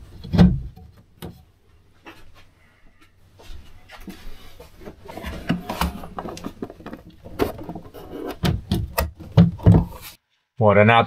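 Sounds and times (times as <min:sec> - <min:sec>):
hands handling objects: 0:03.9 - 0:10.2
loud thumps: 0:05.4 - 0:10.0.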